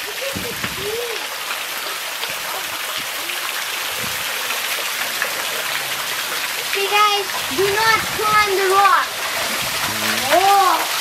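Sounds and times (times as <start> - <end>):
running splashing water: 0.0 - 11.0
faint voices: 6.9 - 11.0.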